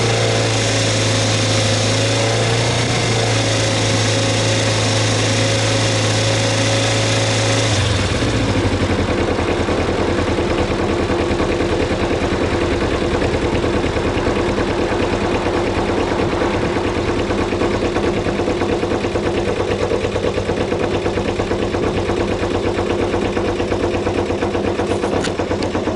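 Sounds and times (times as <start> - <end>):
motorcycle engine idling: 7.3 - 25.9.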